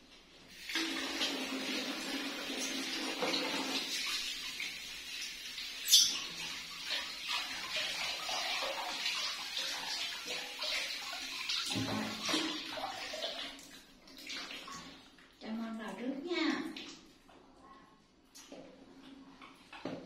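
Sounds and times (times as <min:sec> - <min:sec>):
tap water pouring: 0:00.5 - 0:15.3
water splashing in bathtub: 0:00.5 - 0:17.5, 0:18.2 - 0:20.0.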